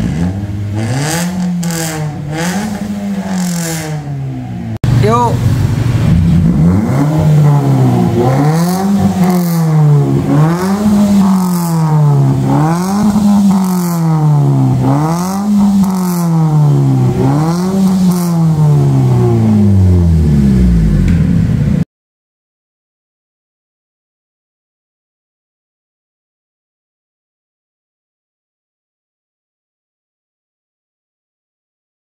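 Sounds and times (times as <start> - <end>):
car engine revving: 0.0 - 21.8.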